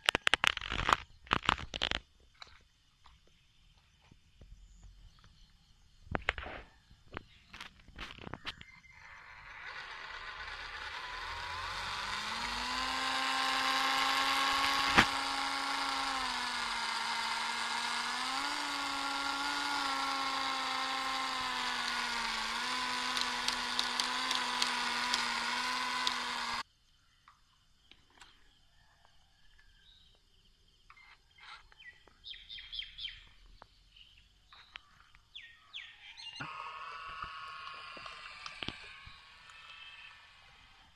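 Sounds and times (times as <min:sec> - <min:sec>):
electric motor whine: 0:07.6 - 0:26.6, 0:36.3 - 0:40.9
faint bird chirps: 0:08.2 - 0:09.5, 0:27.0 - 0:36.4
sharp click: 0:14.9 - 0:15.2.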